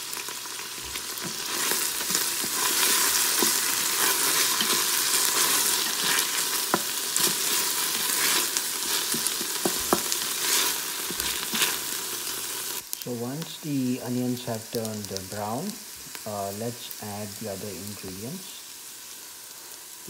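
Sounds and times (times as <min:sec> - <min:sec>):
onions sizzling in hot oil: 0:00.0 - 0:20.0
wooden spatula scraping a pot: 0:00.9 - 0:11.9.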